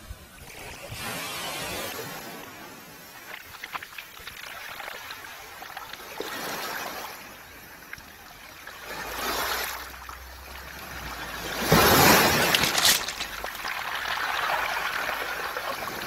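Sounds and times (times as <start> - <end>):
waves washing on pebbles: 8.6 - 16.0
stones clicking together: 12.3 - 13.8.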